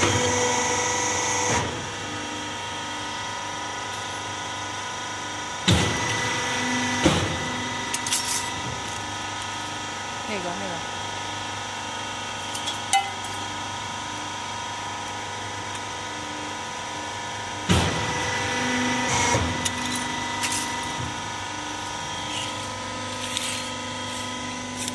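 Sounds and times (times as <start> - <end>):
machine motor hum: 0.0 - 24.9
metallic grinding clatter: 19.5 - 21.0.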